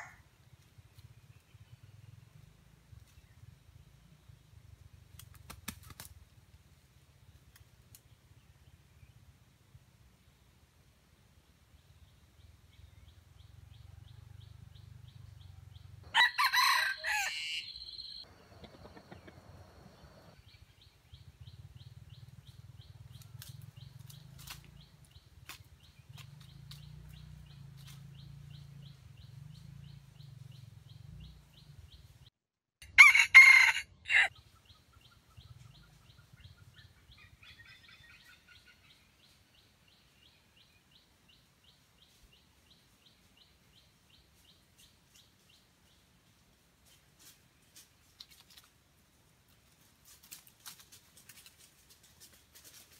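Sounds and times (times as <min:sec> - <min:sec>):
rooster crowing: 0:16.1 - 0:20.4, 0:32.8 - 0:34.3.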